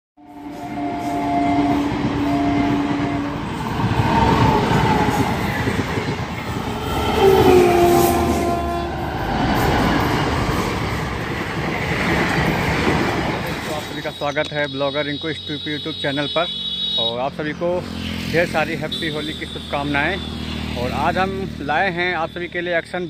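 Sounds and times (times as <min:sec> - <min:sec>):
train horn: 0:00.2 - 0:03.7, 0:06.5 - 0:09.3
train rumble and wheel clatter: 0:00.2 - 0:14.6.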